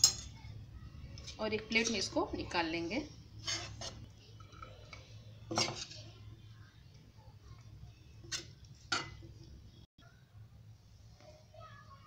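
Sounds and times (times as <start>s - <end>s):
steel ladle scraping a pan: 3.3s - 4.7s, 5.4s - 6.3s, 8.2s - 9.2s.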